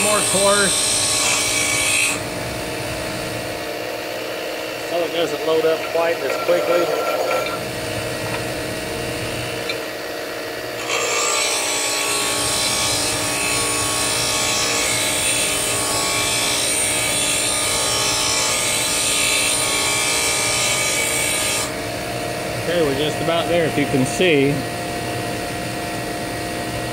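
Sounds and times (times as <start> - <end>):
bench grinder motor hum: 0.0 - 26.9.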